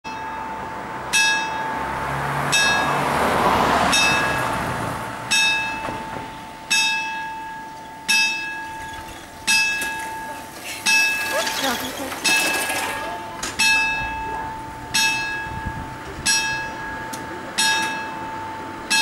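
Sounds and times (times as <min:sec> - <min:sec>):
car driving over crossing: 0:00.3 - 0:19.0
level crossing bell ringing: 0:05.3 - 0:05.9, 0:06.5 - 0:19.0.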